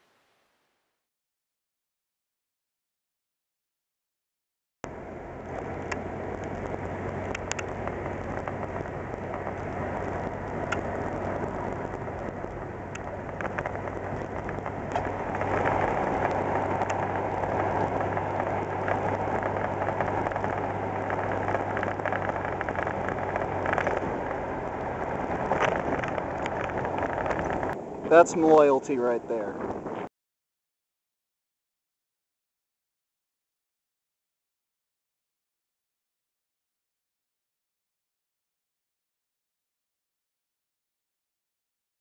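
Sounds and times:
pickup engine drone: 4.8s - 30.1s
road and tyre noise: 4.8s - 30.1s
small clicks and rattles: 5.4s - 27.8s.

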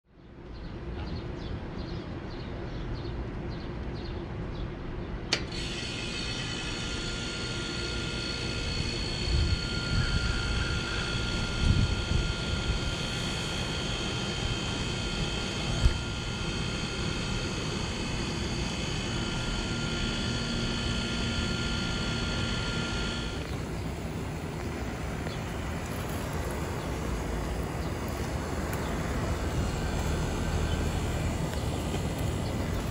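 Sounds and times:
compressor whining: 5.3s - 32.9s
steady high tones: 7.8s - 32.9s.

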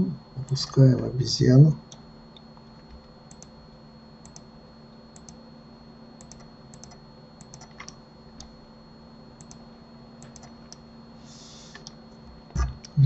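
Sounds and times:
steady low hum: 0.0s - 13.0s
keyboard and mouse clicks: 6.2s - 8.5s, 10.2s - 10.8s.

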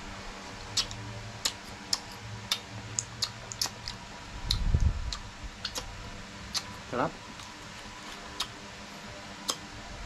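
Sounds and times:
wet mouth clicks and lip smacks: 0.7s - 5.9s, 6.5s - 6.7s, 8.4s - 8.6s, 9.4s - 9.6s.

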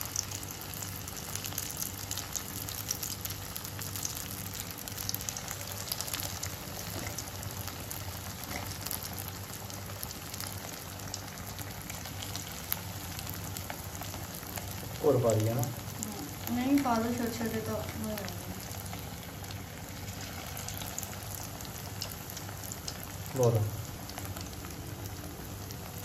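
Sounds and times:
oil sizzling and popping: 0.0s - 26.0s.

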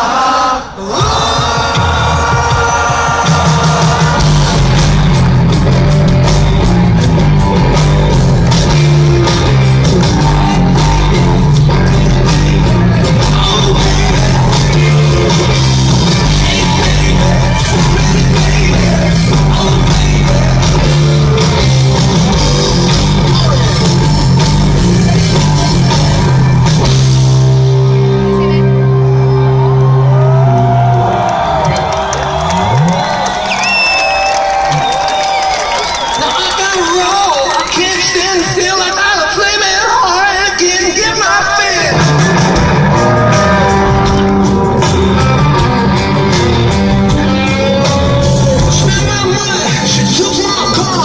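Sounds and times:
person singing: 0.0s - 4.9s, 10.2s - 21.8s
live rock band playing: 1.0s - 51.0s.

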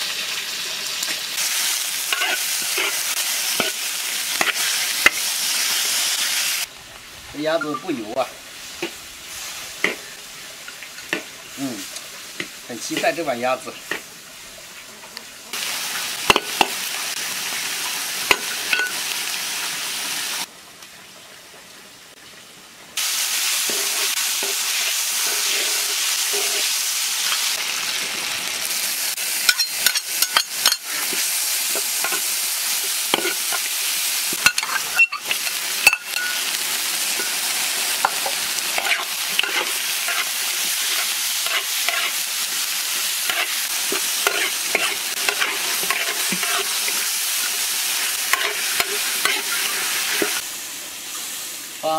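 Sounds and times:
food sizzling in hot oil: 0.0s - 20.5s, 23.0s - 51.9s
metal spatula scraping wok: 2.0s - 5.2s, 23.6s - 27.6s, 33.1s - 33.7s, 34.4s - 36.5s, 37.2s - 42.2s, 42.9s - 50.4s.

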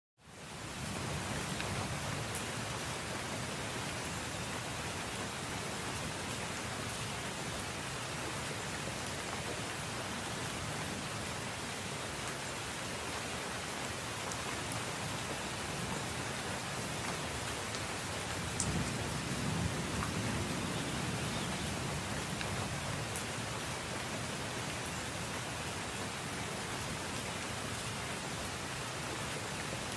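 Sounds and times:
rain falling on leaves: 0.2s - 29.9s
single raindrops ticking: 18.5s - 19.0s.

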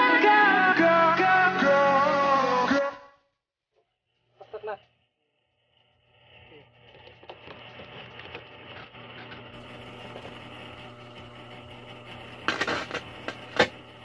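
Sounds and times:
guitar amplifier humming: 9.6s - 14.0s
guitar and cable rattling: 12.4s - 13.8s.

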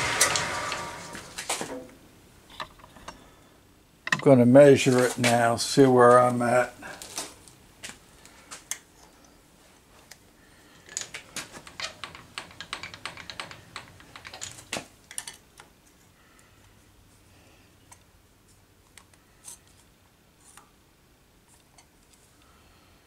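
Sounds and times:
metal chips rattling: 10.8s - 15.5s.

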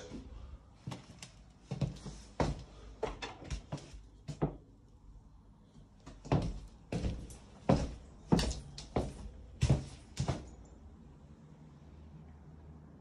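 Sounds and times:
footsteps on laminate floor: 6.3s - 10.5s.

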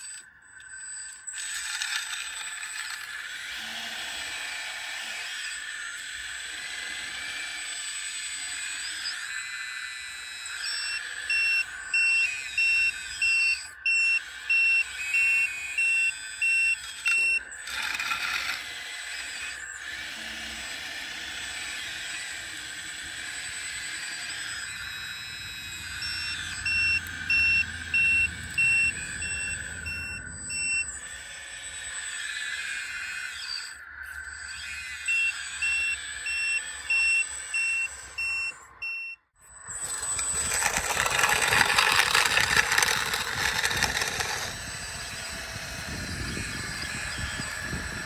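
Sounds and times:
high whine of drive motor: 0.0s - 48.0s
reversing beeper high beeps: 10.4s - 18.6s, 23.9s - 31.0s, 33.5s - 48.0s.

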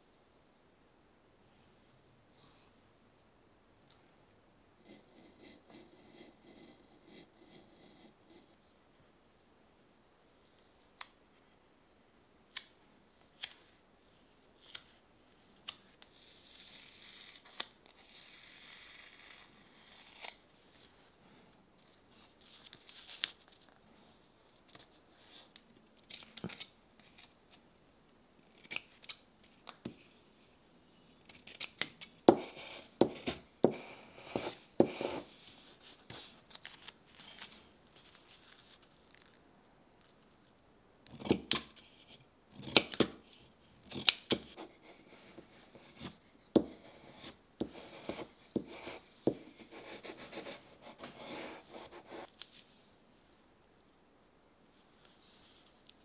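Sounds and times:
paper rustling: 34.4s - 39.4s
scissors snipping paper: 43.9s - 44.6s.

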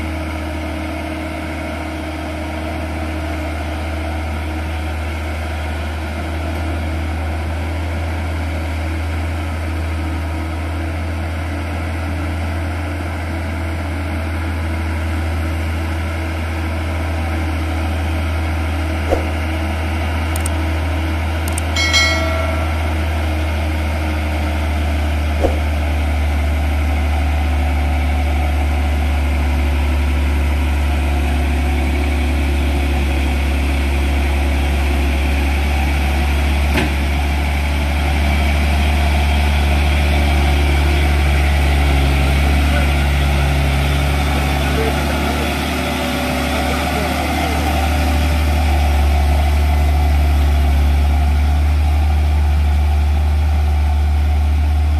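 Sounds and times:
diesel truck engine droning: 0.0s - 54.9s
short sharp sound: 19.1s - 19.5s.

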